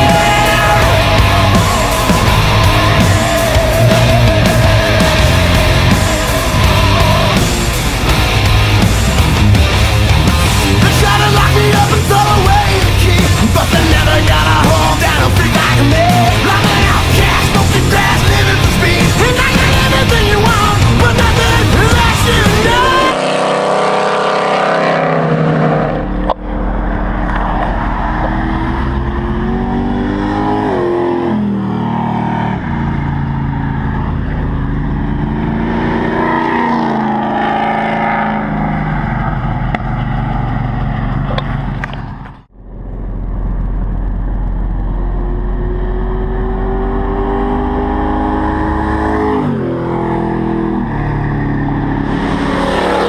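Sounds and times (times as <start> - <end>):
engine accelerating hard: 0.0 - 53.0.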